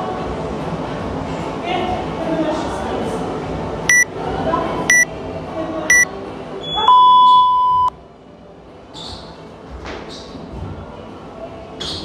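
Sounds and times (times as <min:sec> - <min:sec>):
long lower beep: 0:05.9 - 0:07.9
short high beeps: 0:06.7 - 0:07.9.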